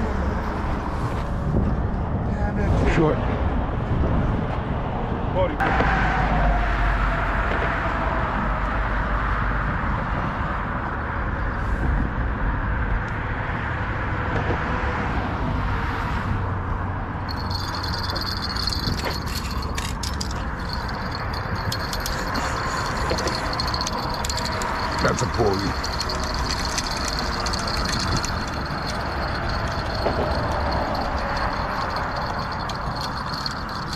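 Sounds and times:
low rumble of traffic: 0:00.0 - 0:33.9
spinning reel whirring and clicking: 0:17.3 - 0:33.9.

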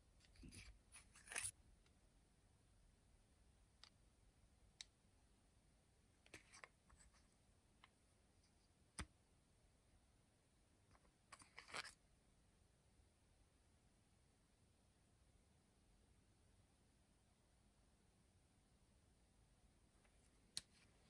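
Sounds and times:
fountain pens clicking and scraping: 0:00.2 - 0:01.6.

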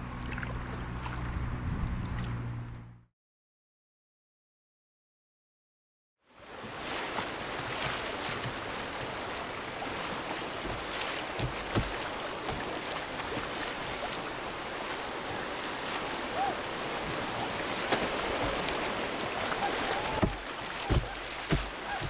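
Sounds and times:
river water rushing and splashing: 0:06.3 - 0:22.0.

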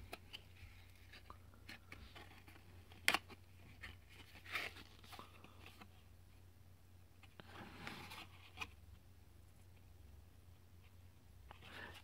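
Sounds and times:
cardboard card clicks and rustles: 0:00.0 - 0:06.1.

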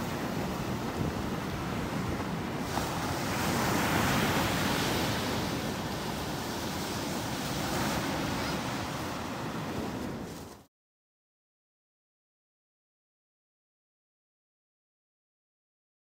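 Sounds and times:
surf breaking on beach: 0:00.0 - 0:10.7.

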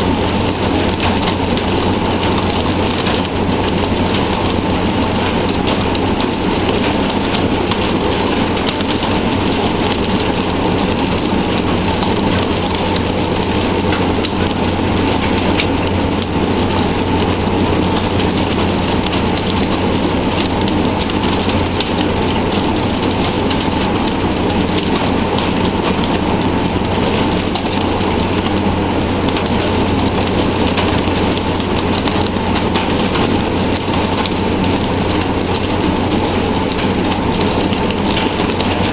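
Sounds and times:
boat engine humming: 0:00.0 - 0:38.9
small clicks and knocks: 0:29.3 - 0:38.9.

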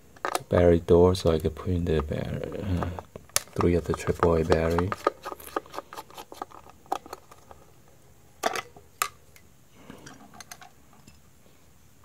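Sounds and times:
plastic cover scraping: 0:02.3 - 0:07.6.

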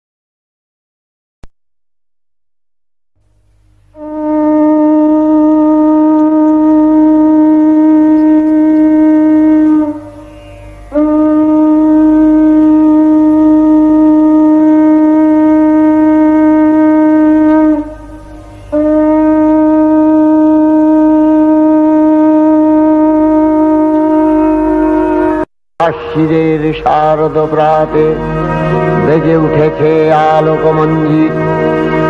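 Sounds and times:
conch shell blasts: 0:03.9 - 0:10.1, 0:10.9 - 0:25.5.

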